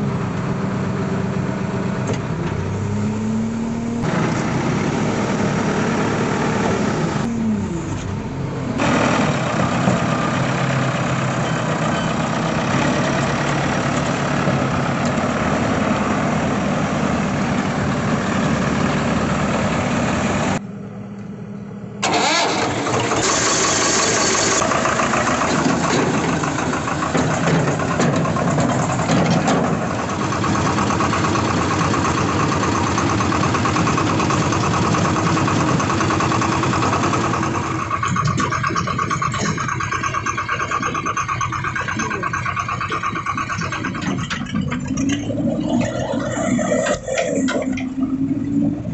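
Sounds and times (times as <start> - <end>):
diesel engine running: 0.0 - 48.9
tractor starter cranking: 22.0 - 48.1.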